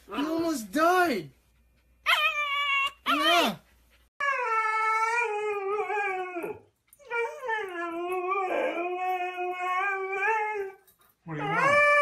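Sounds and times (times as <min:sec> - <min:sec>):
dog howling: 0:04.2 - 0:12.0.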